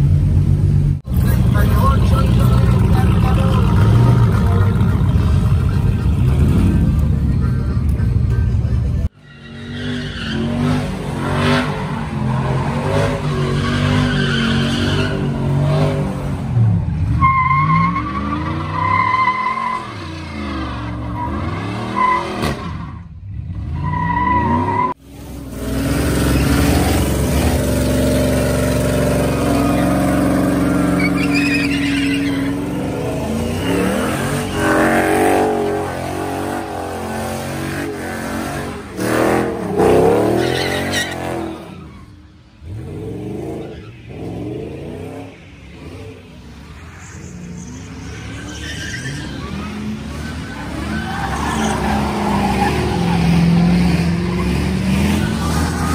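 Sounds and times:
truck engine revving: 1.1s - 9.1s, 25.4s - 42.0s, 47.2s - 55.9s
tires squealing: 1.4s - 7.9s, 8.9s - 55.9s.

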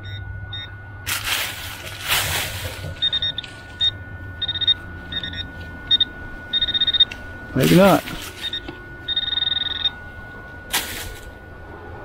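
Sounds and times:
metal detector beeping: 0.0s - 11.4s
steady high tone: 0.0s - 12.0s
scraping rustle: 1.1s - 3.9s.

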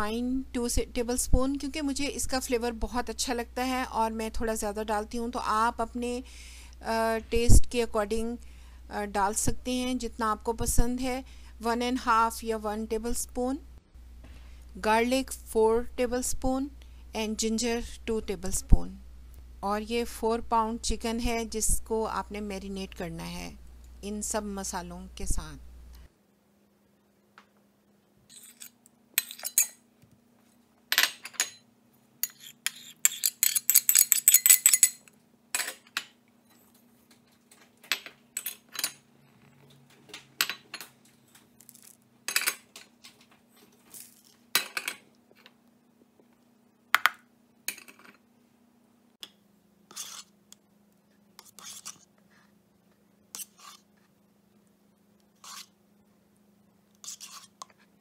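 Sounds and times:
faint steady hum: 0.0s - 58.0s
metal spoon clinking on china bowls: 28.4s - 29.8s, 32.2s - 35.8s.

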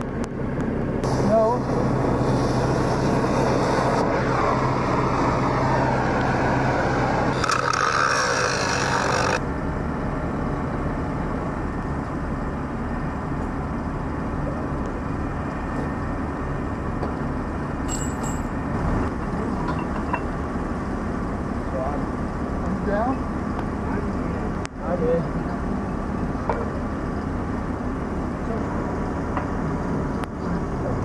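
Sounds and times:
truck engine running: 0.0s - 31.0s
cutting torch hissing: 1.0s - 9.4s
metallic clink: 17.9s - 18.6s.

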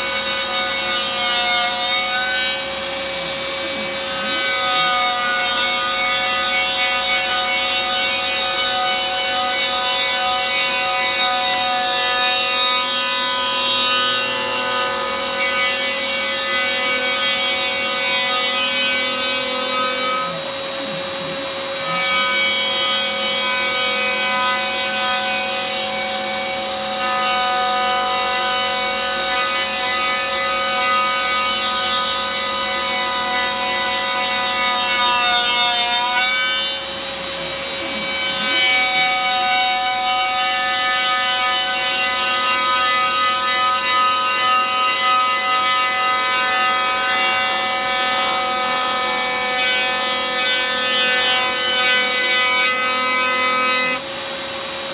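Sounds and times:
rasping wood cutting: 0.0s - 54.8s
router spindle whining: 36.7s - 46.4s.

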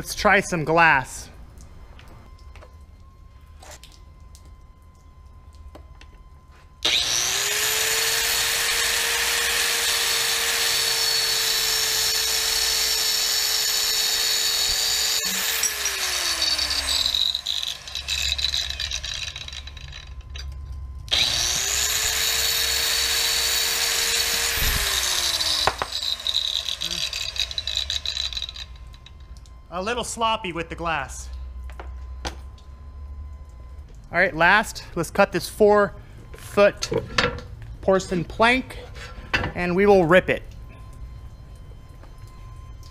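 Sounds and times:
saw spinning down whine: 6.5s - 31.1s
tile saw cutting glass tile: 6.8s - 20.1s, 21.1s - 28.7s.

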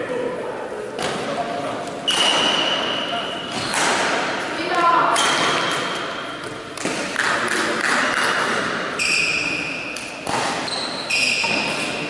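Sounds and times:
shoes squeaking on court floor: 1.9s - 4.0s, 9.0s - 12.0s
racket hitting shuttlecock: 2.0s - 2.9s, 3.5s - 12.0s.

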